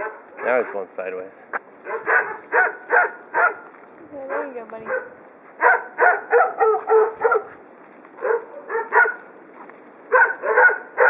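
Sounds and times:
dog barking: 0:00.0 - 0:00.7, 0:01.8 - 0:03.7, 0:04.3 - 0:07.6, 0:08.2 - 0:09.3, 0:10.1 - 0:11.0.

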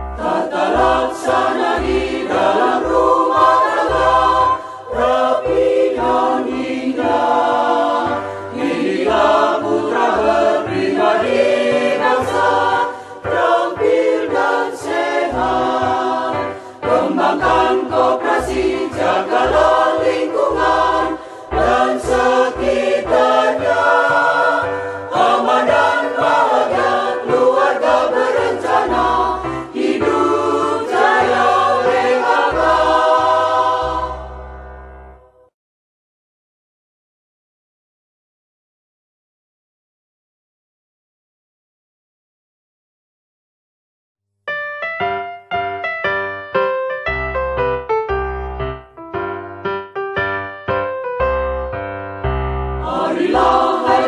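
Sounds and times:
voices singing over a bass beat: 0:00.2 - 0:34.4, 0:52.8 - 0:54.0.

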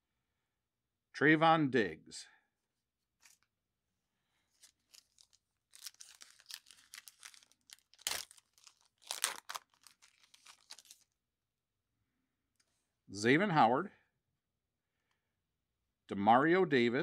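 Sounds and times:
foil wrapper tearing and crinkling: 0:04.6 - 0:11.2
sharp rips: 0:04.9 - 0:11.0.

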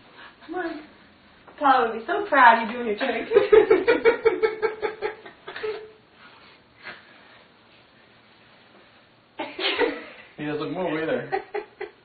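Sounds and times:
person chuckling: 0:05.1 - 0:06.0.

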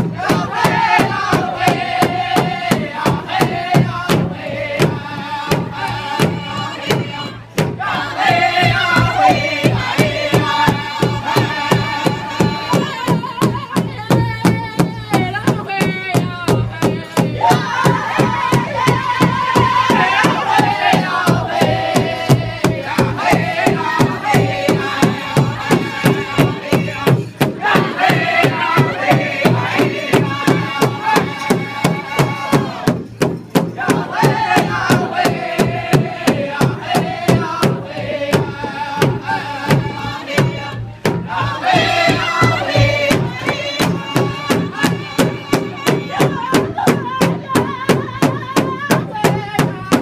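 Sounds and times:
big drum beating: 0:00.0 - 0:50.0
men singing a chanted song: 0:00.0 - 0:50.0.

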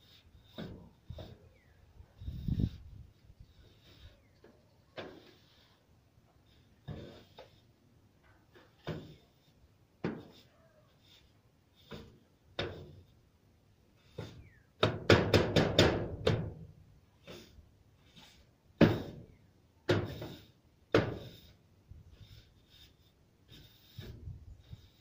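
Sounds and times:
tool knocking and scraping in gutter: 0:00.4 - 0:01.5, 0:04.9 - 0:05.5, 0:06.8 - 0:07.6, 0:08.5 - 0:09.4, 0:10.0 - 0:10.5, 0:11.8 - 0:13.1, 0:14.1 - 0:16.7, 0:18.2 - 0:21.6.

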